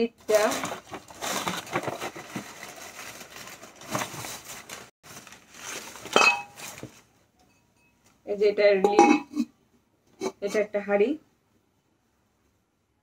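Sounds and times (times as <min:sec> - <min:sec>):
handling rustling: 0:00.3 - 0:07.1
clay pot clinking: 0:06.1 - 0:06.6, 0:08.8 - 0:09.5.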